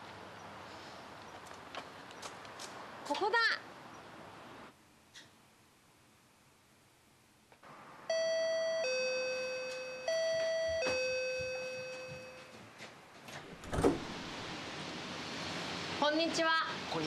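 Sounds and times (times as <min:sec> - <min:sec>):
two-tone doorbell chime: 0:08.1 - 0:12.6.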